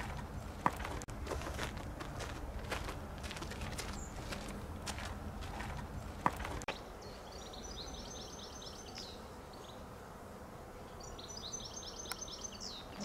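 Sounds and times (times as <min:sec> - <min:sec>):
footsteps: 0:00.0 - 0:06.7
songbird singing: 0:02.6 - 0:10.0, 0:10.8 - 0:13.0.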